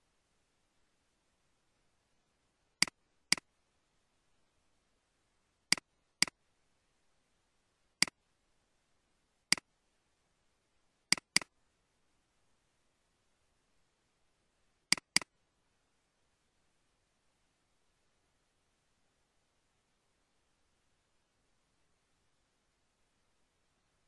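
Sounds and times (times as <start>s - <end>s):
computer mouse clicks: 2.8s - 3.5s, 5.7s - 6.4s, 11.1s - 11.5s, 14.9s - 15.3s.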